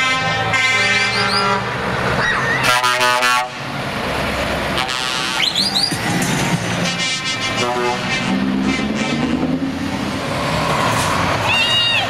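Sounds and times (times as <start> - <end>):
truck air horns: 0.0 - 1.9, 2.5 - 3.8, 4.7 - 5.9, 6.7 - 9.7
diesel truck engines running: 0.0 - 12.0.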